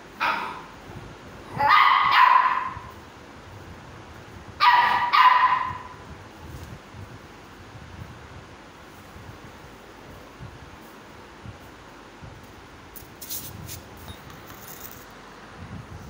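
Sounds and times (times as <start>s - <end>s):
puppy barking: 0.2s - 0.7s, 1.5s - 2.9s, 4.6s - 6.0s.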